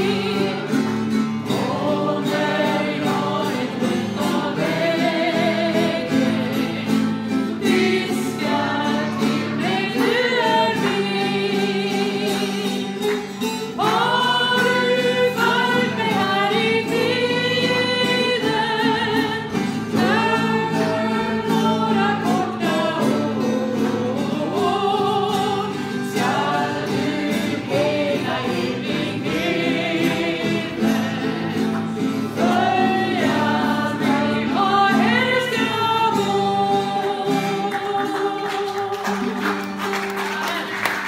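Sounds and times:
two women singing: 0.0s - 39.4s
strummed acoustic guitar: 0.0s - 41.0s.

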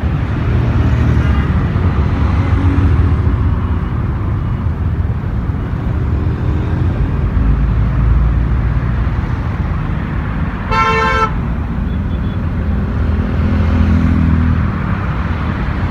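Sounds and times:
road traffic rumble: 0.0s - 15.9s
vehicle horn toot: 10.7s - 12.4s.

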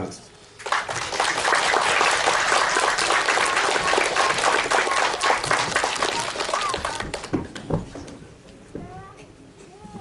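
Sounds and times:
audience applause: 0.6s - 7.7s.

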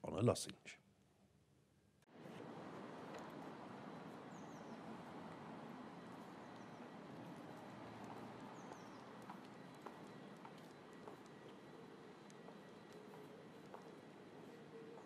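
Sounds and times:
high falling bird chirps: 3.1s - 15.0s.

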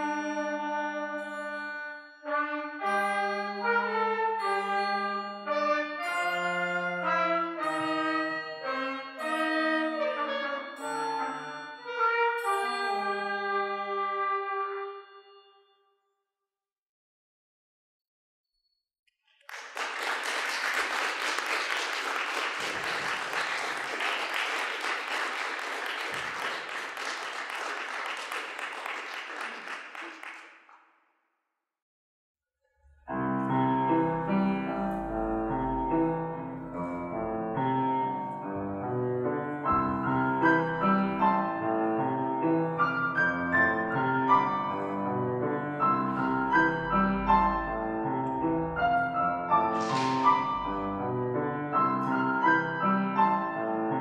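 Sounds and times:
audience applauding: 19.3s - 30.8s
piano music: 33.1s - 54.0s.

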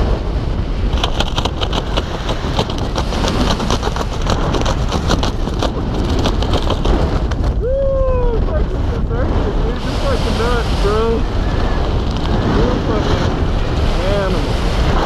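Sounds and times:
fabric flapping in airstream: 0.0s - 9.0s
wind rush buffeting microphone: 0.0s - 15.0s.

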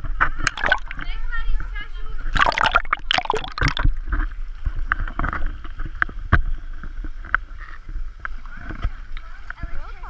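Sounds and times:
low underwater rumble: 0.1s - 7.2s
splashing into water: 0.4s - 1.2s, 2.3s - 4.4s.

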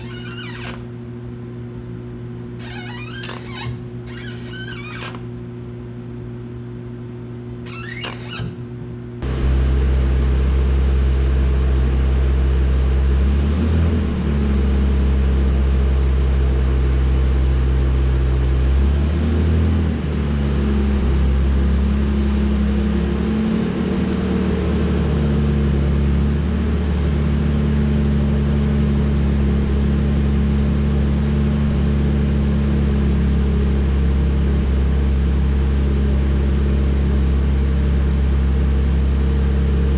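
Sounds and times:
short squeak: 0.0s - 0.9s, 2.6s - 5.3s, 7.6s - 8.7s.

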